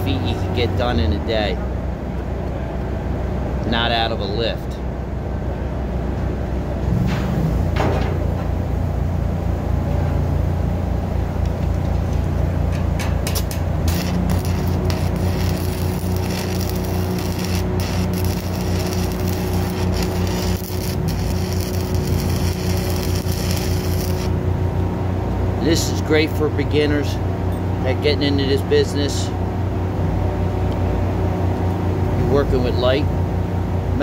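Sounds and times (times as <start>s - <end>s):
engine droning: 0.0s - 34.0s
welding arc crackling: 13.2s - 24.4s.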